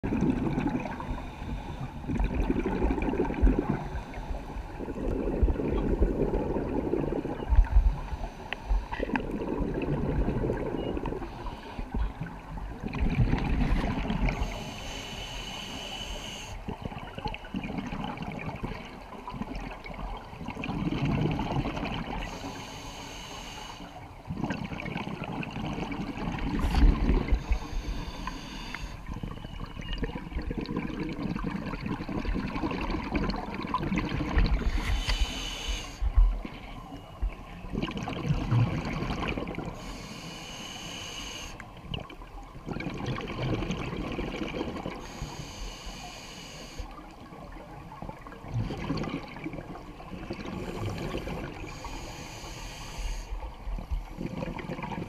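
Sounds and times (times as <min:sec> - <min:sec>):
exhaled bubbles rumbling: 0:00.0 - 0:01.4, 0:02.0 - 0:08.2, 0:08.8 - 0:14.6, 0:16.6 - 0:22.3, 0:24.2 - 0:28.0, 0:29.0 - 0:35.4, 0:36.0 - 0:39.8, 0:41.8 - 0:45.0, 0:47.2 - 0:51.8, 0:53.4 - 0:55.0.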